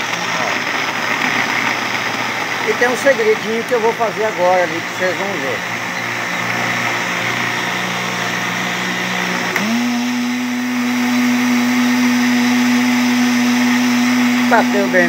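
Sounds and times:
blender motor humming: 0:00.0 - 0:15.0
blender switch click: 0:09.5 - 0:10.2.

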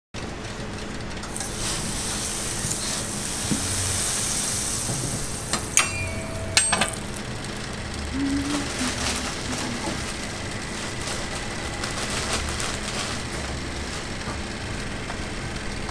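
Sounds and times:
fat sizzling on a griddle: 0:01.3 - 0:06.5
metal mold clinking on griddle: 0:05.2 - 0:07.2.

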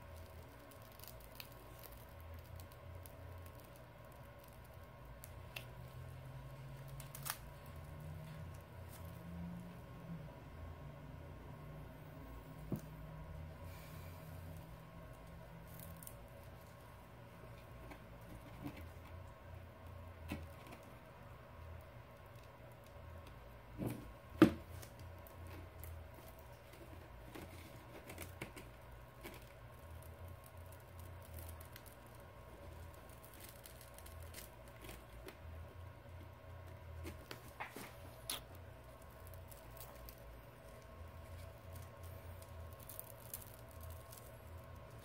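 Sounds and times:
glass screen peeling crackles: 0:00.0 - 0:09.1, 0:28.0 - 0:35.4, 0:37.0 - 0:45.0
faint steady hum: 0:00.0 - 0:45.0.

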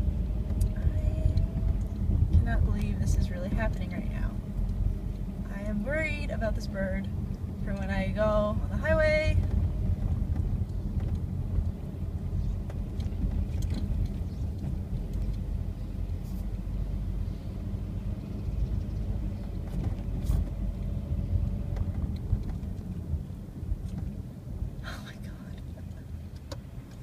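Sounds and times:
car engine and road rumble: 0:00.0 - 0:27.0.

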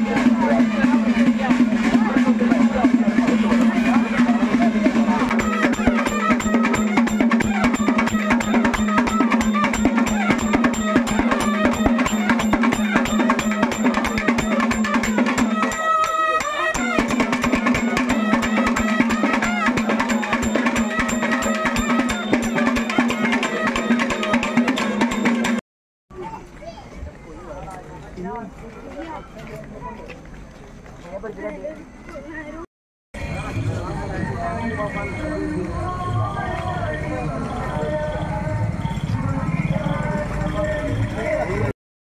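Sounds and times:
snare and bass drumming: 0:00.0 - 0:25.6.

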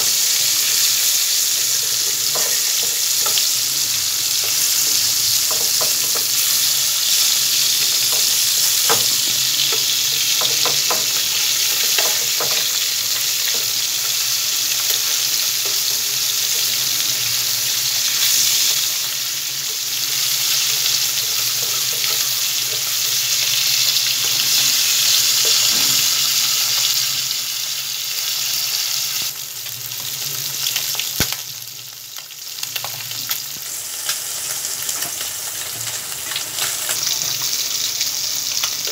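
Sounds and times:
fish sizzling in hot oil: 0:00.0 - 0:38.9.

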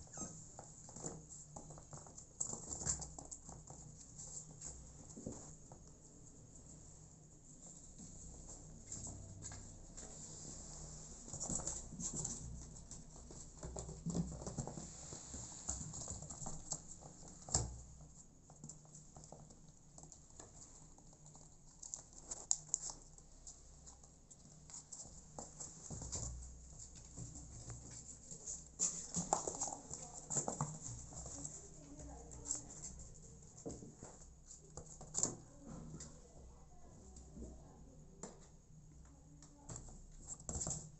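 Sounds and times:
kittens scrambling on cardboard: 0:00.1 - 0:05.7, 0:11.1 - 0:36.2.

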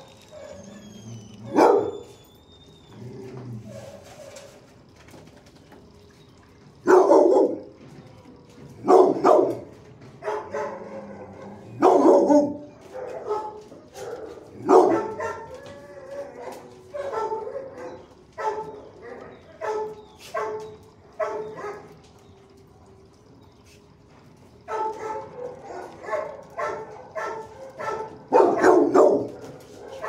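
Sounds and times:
dog barking: 0:01.5 - 0:02.1, 0:06.8 - 0:07.8, 0:08.8 - 0:15.6, 0:16.5 - 0:18.8, 0:19.6 - 0:22.0, 0:24.7 - 0:30.0.

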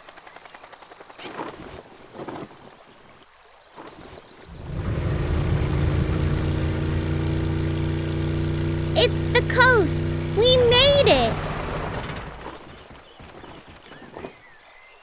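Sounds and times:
low engine drone: 0:04.5 - 0:12.5
fast boat engine puttering: 0:04.5 - 0:12.7.

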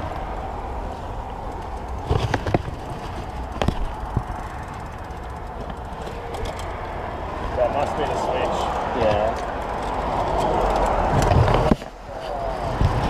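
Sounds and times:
passing road traffic: 0:00.0 - 0:13.0
bike gear mechanism clicks: 0:01.3 - 0:07.0, 0:09.1 - 0:11.9.

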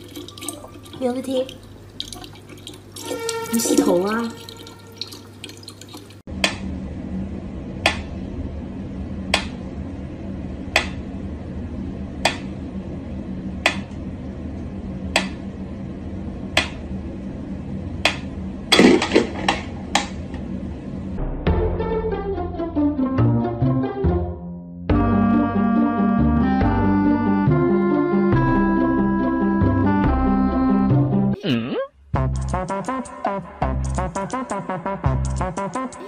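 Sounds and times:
low hum: 0:06.2 - 0:22.7.

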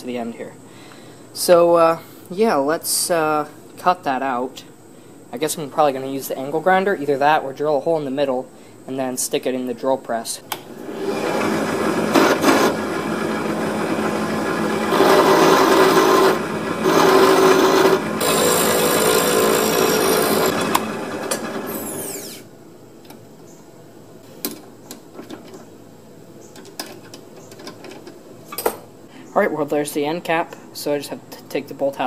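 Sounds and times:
drill press winding down whine: 0:10.8 - 0:22.4
drill press motor hum: 0:10.8 - 0:22.5
file rasping on metal: 0:14.9 - 0:18.6.

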